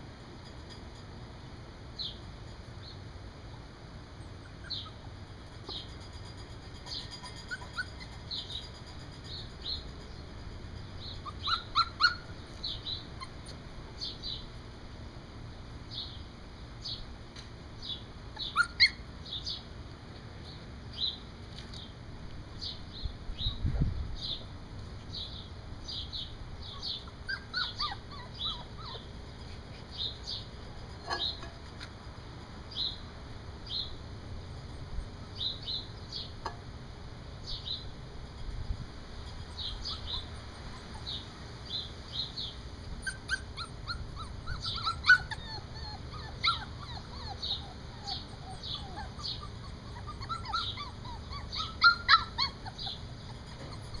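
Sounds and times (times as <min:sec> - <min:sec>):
bird chirping: 0:04.2 - 0:05.0, 0:05.6 - 0:14.5, 0:15.9 - 0:17.1, 0:25.1 - 0:31.6, 0:32.7 - 0:34.0, 0:35.3 - 0:36.4, 0:37.4 - 0:37.9, 0:39.2 - 0:54.0
puppies yipping and whimpering: 0:04.2 - 0:10.2, 0:11.0 - 0:13.6, 0:18.4 - 0:19.1, 0:26.6 - 0:31.8, 0:39.5 - 0:54.0.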